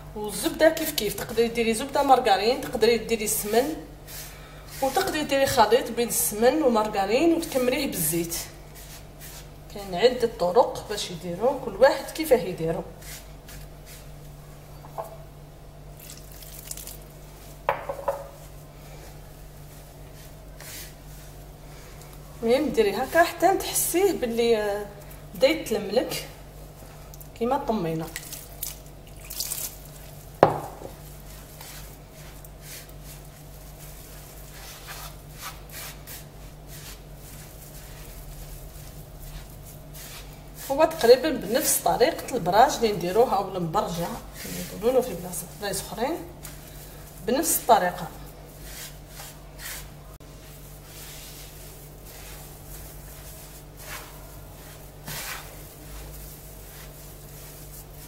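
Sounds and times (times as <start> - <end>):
hands rubbing gritty dough: 0.8 - 12.2, 12.8 - 14.7, 16.0 - 17.7, 18.3 - 58.0
dough scraping in bowl: 4.7 - 6.7, 30.5 - 58.0
hands rubbing gritty semolina: 31.0 - 41.1, 47.9 - 58.0.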